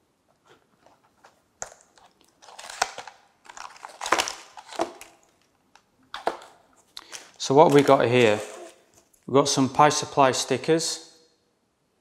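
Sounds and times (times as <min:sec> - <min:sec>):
cardboard and plastic crinkling: 0:00.5 - 0:05.5, 0:06.1 - 0:09.2.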